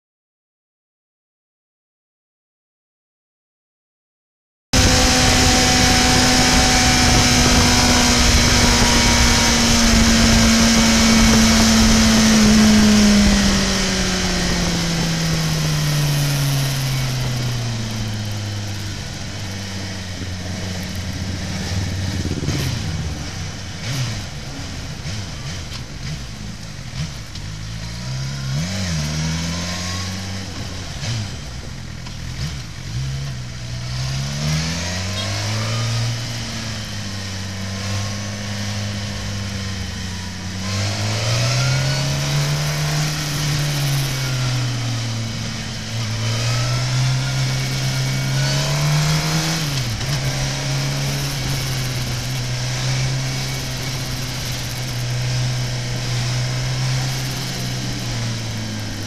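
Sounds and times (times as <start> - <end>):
wind rush: 4.8 - 27.1
motorcycle engine running: 4.8 - 59.0.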